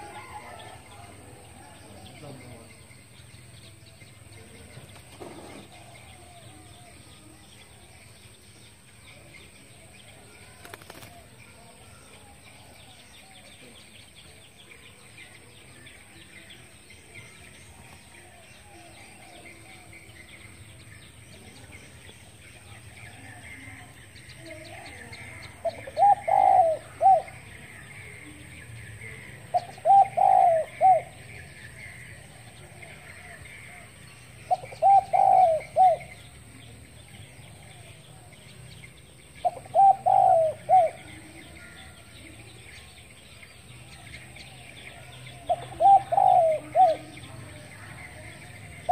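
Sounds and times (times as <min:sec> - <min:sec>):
dove cooing: 0:24.5 - 0:28.2, 0:29.1 - 0:32.0, 0:32.8 - 0:36.3, 0:39.4 - 0:41.8, 0:45.3 - 0:48.9.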